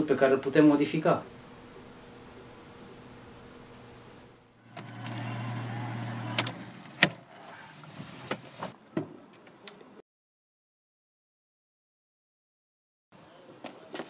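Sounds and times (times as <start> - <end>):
car engine hum: 1.3 - 7.8
ignition clicks: 4.7 - 7.2.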